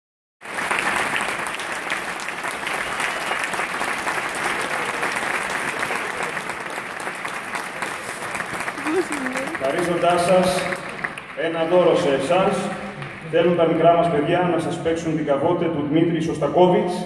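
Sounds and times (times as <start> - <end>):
audience applauding: 0.4 - 13.8.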